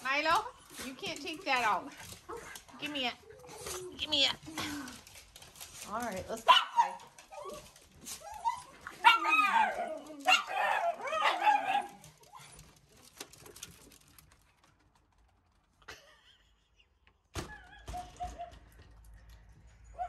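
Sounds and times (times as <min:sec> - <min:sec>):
dogs barking and yipping: 0:06.3 - 0:14.1, 0:17.6 - 0:19.0, 0:19.8 - 0:20.0.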